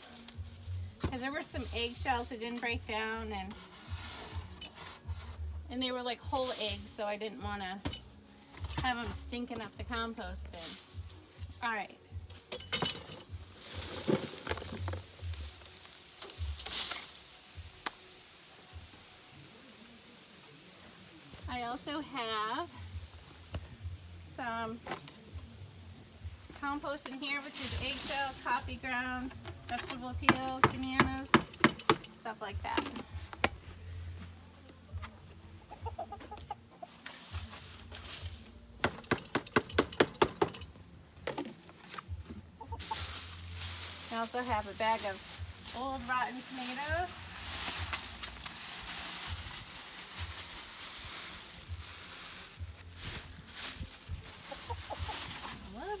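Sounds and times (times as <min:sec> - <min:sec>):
plants rustling and crackling: 0:00.0 - 0:31.3, 0:36.8 - 0:39.1, 0:41.2 - 0:56.0
chickens clucking: 0:35.5 - 0:37.2, 0:42.3 - 0:43.3, 0:54.2 - 0:55.6.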